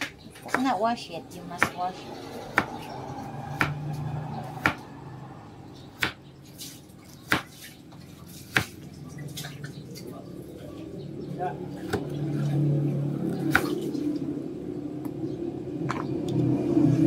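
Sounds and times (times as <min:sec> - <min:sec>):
knife chopping on plastic board: 0:03.6 - 0:03.8, 0:04.6 - 0:04.8, 0:06.0 - 0:06.2, 0:07.2 - 0:07.6, 0:08.4 - 0:08.8.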